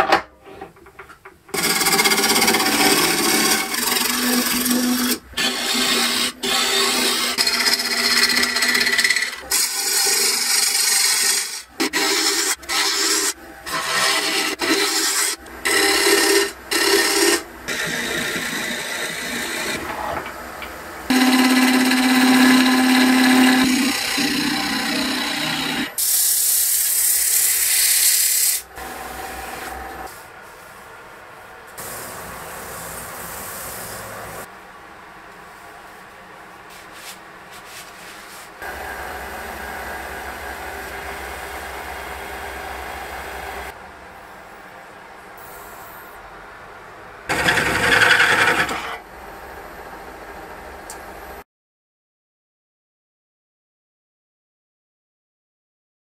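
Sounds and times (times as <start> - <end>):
lathe gouge cutting wood: 1.6 - 20.0, 21.1 - 30.1, 38.6 - 43.7, 47.3 - 49.0.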